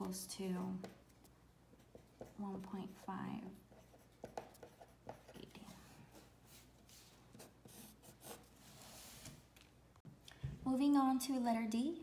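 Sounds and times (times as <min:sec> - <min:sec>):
faint handwriting scratching: 0:00.6 - 0:09.2.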